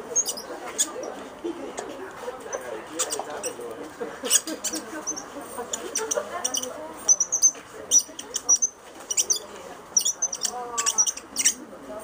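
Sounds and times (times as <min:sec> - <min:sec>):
murmur of voices: 0:00.0 - 0:12.0
marker pen squeaking on photo: 0:00.1 - 0:01.2, 0:02.5 - 0:03.6, 0:04.2 - 0:11.6.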